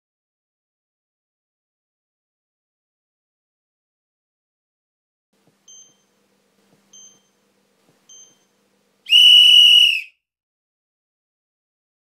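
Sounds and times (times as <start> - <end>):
long loud tone: 9.1 - 10.1
short high pips: 9.1 - 10.1.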